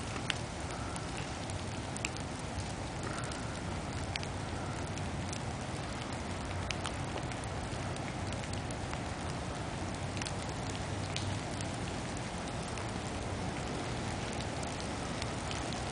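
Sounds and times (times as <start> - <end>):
snowflakes ticking: 0.0 - 7.4
steady hiss and low rumble: 0.0 - 15.9.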